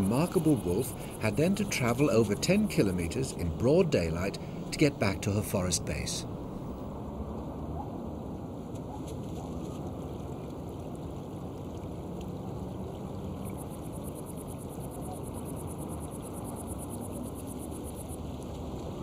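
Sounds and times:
stream running over stones: 0:00.0 - 0:06.6, 0:09.2 - 0:14.7, 0:17.3 - 0:19.0.

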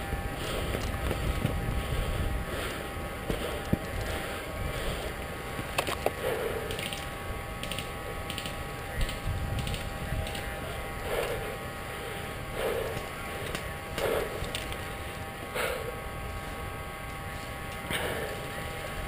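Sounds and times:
sharp clicks: 0:05.7 - 0:10.5.

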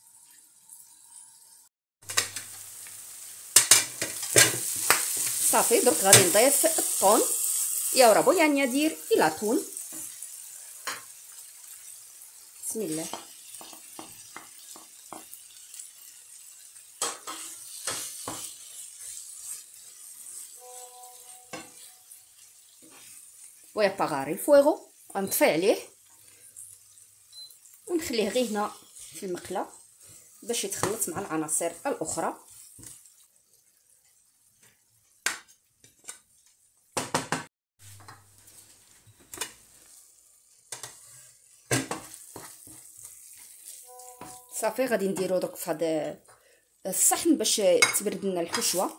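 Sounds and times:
food sizzling in a frying pan: 0:00.0 - 0:37.2, 0:37.8 - 0:48.9
wooden spoon scraping a pan: 0:17.0 - 0:23.7, 0:28.0 - 0:33.3, 0:37.9 - 0:45.5, 0:47.9 - 0:48.9
steady electronic tone: 0:20.6 - 0:21.6.

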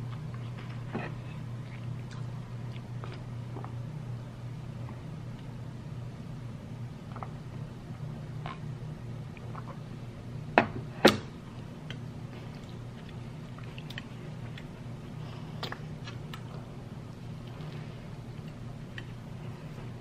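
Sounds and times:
chewing and mouth sounds: 0:00.0 - 0:03.8, 0:11.8 - 0:19.2
steady low hum: 0:00.0 - 0:20.0.

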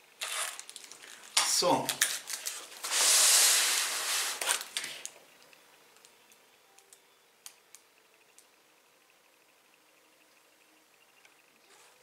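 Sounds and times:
foam scraping against cardboard: 0:02.7 - 0:04.7.

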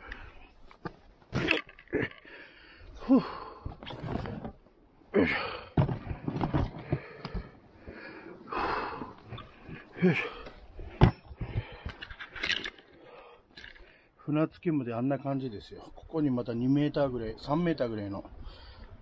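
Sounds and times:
man grunting and sighing: 0:01.4 - 0:03.9, 0:05.1 - 0:05.9, 0:08.5 - 0:11.9.

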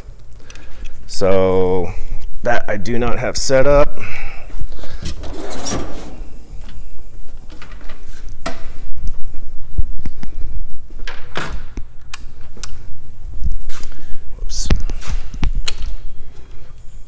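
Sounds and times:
footsteps walking: 0:06.5 - 0:11.2, 0:11.9 - 0:14.1.

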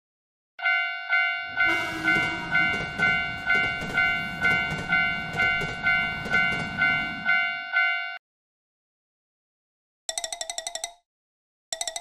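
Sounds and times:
railroad crossing bell ringing: 0:00.6 - 0:08.2
train rumbling past: 0:01.6 - 0:07.5
wheels clacking on rails: 0:01.6 - 0:07.9.

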